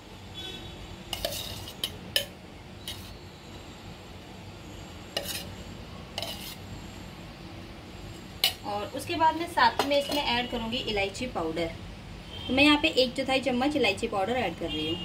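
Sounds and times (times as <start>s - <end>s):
spoon clicking and scraping pan: 1.1s - 3.2s, 5.2s - 5.5s, 6.2s - 6.6s.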